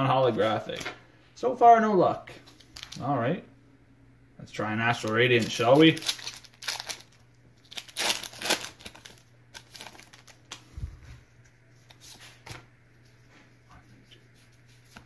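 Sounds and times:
foil wrapper tearing and crinkling: 2.6 - 3.0, 4.9 - 10.7
cards being handled: 11.4 - 15.0.

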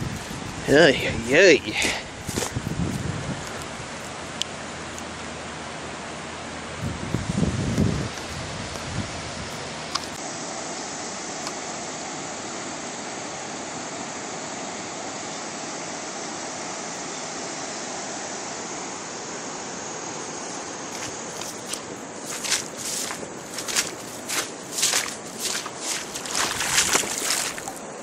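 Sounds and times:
floodwater rushing: 0.0 - 10.6, 20.6 - 28.0.

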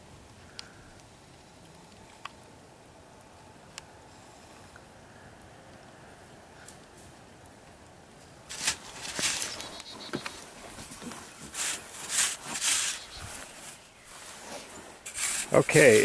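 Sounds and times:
scraping and crunching in dirt: 8.2 - 16.0.

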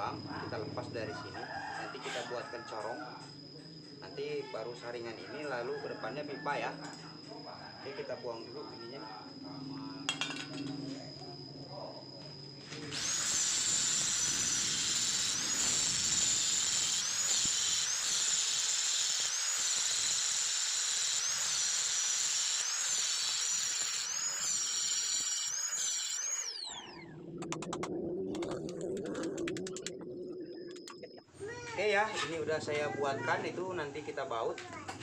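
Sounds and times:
angle grinder grinding metal: 12.8 - 27.8.

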